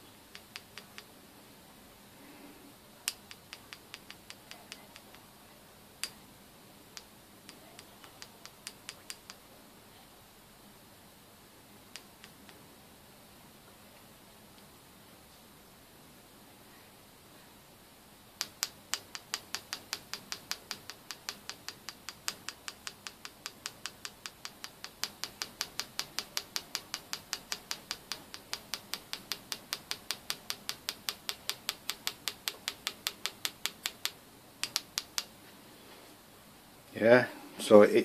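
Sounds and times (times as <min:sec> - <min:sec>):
rapid regular ticking: 0:18.4 - 0:35.3.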